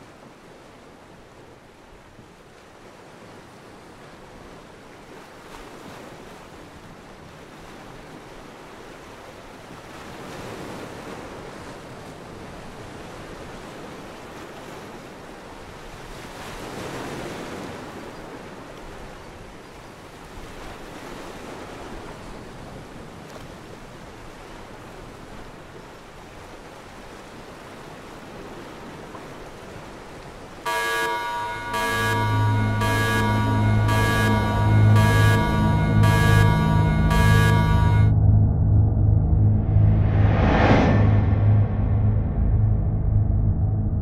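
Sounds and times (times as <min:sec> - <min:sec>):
wind: 0:00.0 - 0:44.0
ocean surf breaking: 0:27.4 - 0:38.1.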